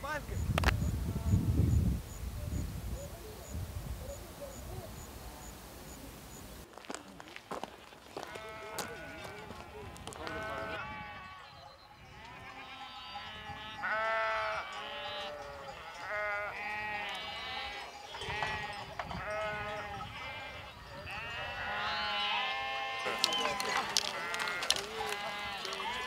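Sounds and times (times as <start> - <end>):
sheep bleating: 8.2 - 26.0.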